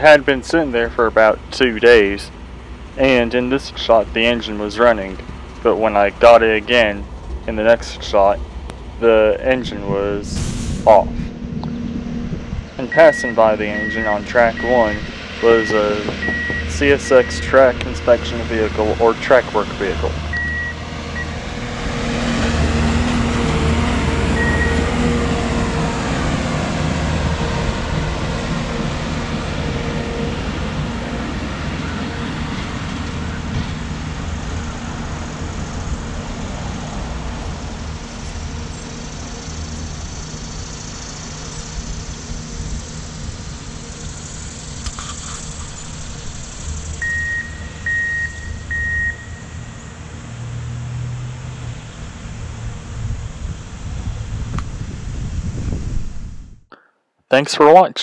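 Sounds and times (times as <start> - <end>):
steady low rumble: 0.0 - 31.6
track maintenance machine engine: 0.0 - 50.6
wheels rolling on rails: 0.7 - 10.0, 14.9 - 48.8
vehicle backup alarm beeping: 12.8 - 18.8, 20.3 - 21.4, 24.3 - 25.2, 44.7 - 50.1.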